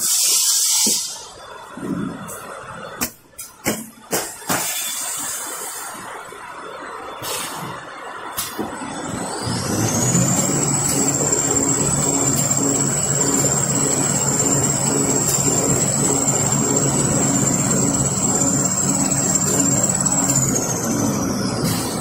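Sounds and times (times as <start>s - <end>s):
machine noise: 4.0s - 22.0s
high-pitched machine whine: 4.5s - 22.0s.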